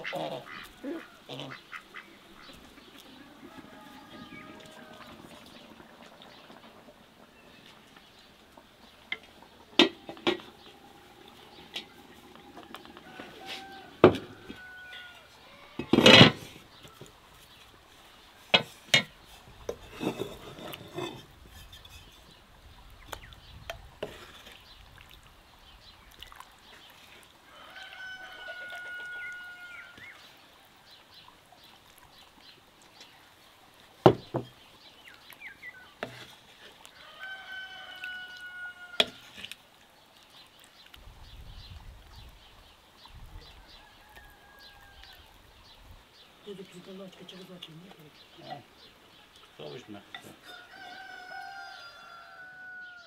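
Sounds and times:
rooster crowing: 3.1s - 5.6s, 10.0s - 15.8s, 27.5s - 30.0s, 37.0s - 39.2s, 43.6s - 45.2s, 50.4s - 53.0s
pot and utensils clattering: 15.8s - 16.6s, 18.5s - 22.4s.

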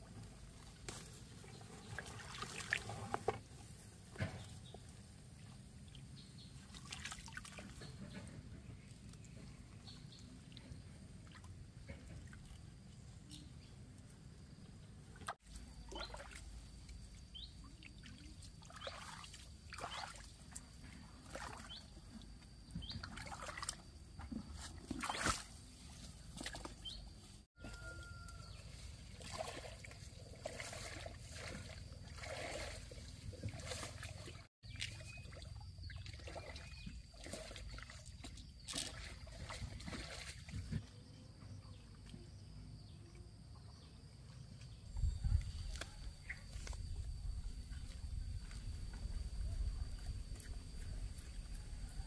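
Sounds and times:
shallow water sloshing: 29.0s - 40.8s.

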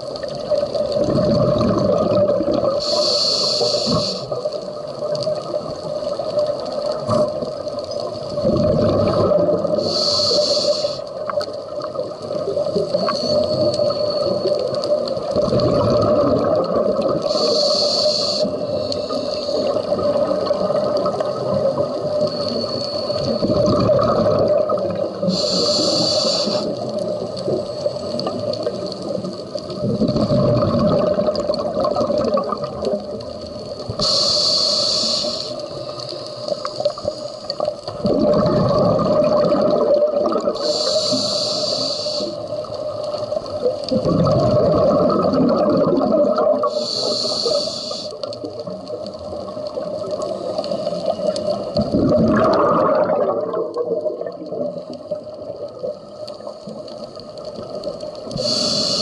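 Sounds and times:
bubbling exhale: 1.0s - 4.4s, 8.4s - 11.1s, 12.8s - 28.5s, 29.8s - 32.8s, 33.9s - 42.6s, 43.5s - 48.3s, 49.8s - 55.6s, 58.3s - 59.0s
regulator hissing inhale: 2.7s - 4.6s, 9.7s - 11.3s, 12.9s - 15.0s, 17.2s - 20.0s, 22.1s - 23.7s, 25.2s - 28.5s, 33.9s - 37.8s, 40.5s - 43.8s, 46.6s - 48.4s, 50.0s - 51.9s, 58.2s - 59.0s.

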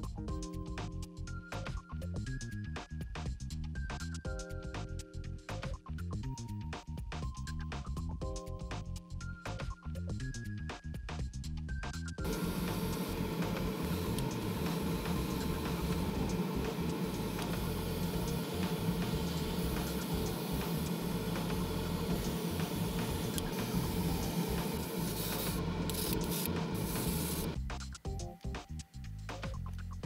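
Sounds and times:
airbrush spraying hiss: 12.2s - 27.6s
low hum: 12.2s - 27.6s.

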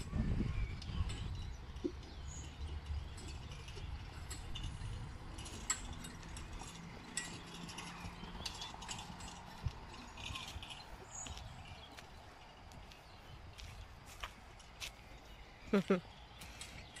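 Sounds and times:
carriage and harness rattling: 0.0s - 15.2s
hoofbeats on soft dirt: 3.2s - 15.5s.

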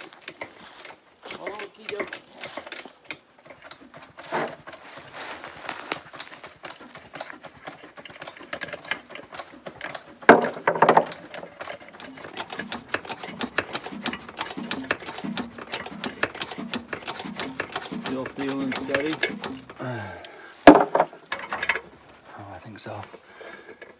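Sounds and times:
metallic clatter: 7.1s - 19.8s, 20.6s - 22.0s
ratchet wrench clicking: 8.2s - 19.8s.

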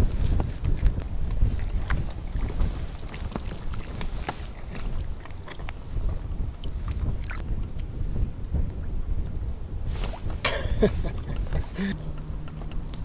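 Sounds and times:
wind rumbling on microphone: 0.0s - 13.0s
small water splashes: 1.5s - 5.8s, 6.5s - 7.4s.

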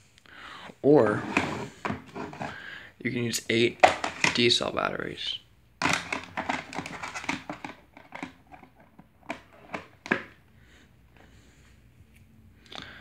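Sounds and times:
plastic cover clicks and rattles: 3.8s - 4.5s, 5.8s - 10.4s.

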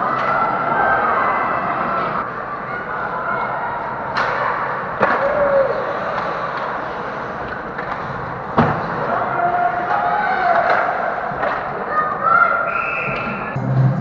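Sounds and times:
puck and sticks clacking: 4.1s - 6.8s, 7.4s - 9.0s, 9.8s - 12.2s.

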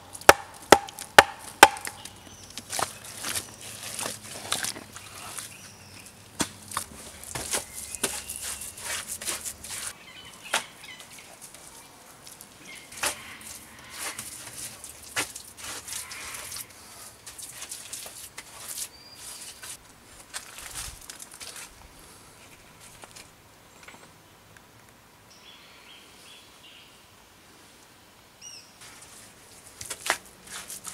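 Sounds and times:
hands knocking and scraping soil: 0.0s - 5.5s, 6.3s - 10.7s, 12.9s - 16.6s, 29.6s - 30.9s.

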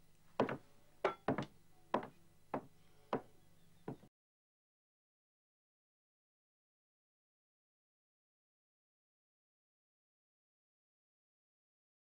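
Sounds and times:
sharp knocks: 0.4s - 3.3s.

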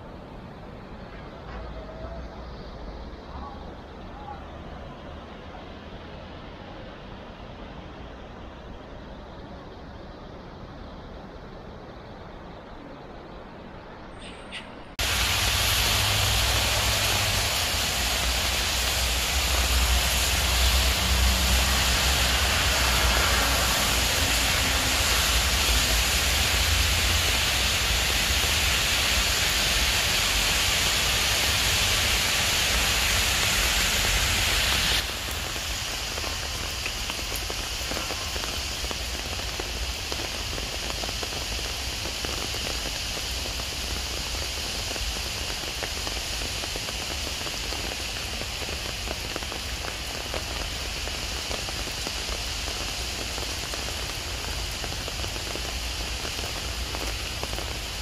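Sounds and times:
heavy rain on trees and path: 0.0s - 58.0s.

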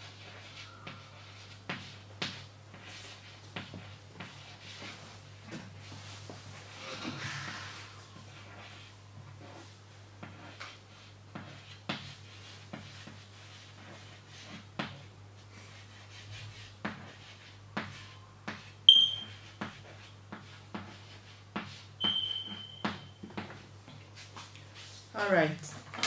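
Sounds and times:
chalk tapping and scratching: 0.0s - 6.7s, 7.6s - 25.0s
chalk squeak: 18.9s - 19.6s, 22.0s - 23.2s.

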